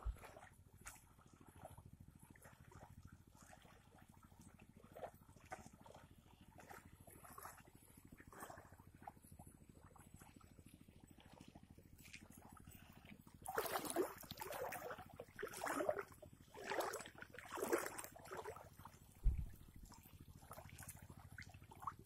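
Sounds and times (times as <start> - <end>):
shallow water splashing: 0.0 - 22.0
low thump: 19.2 - 19.7.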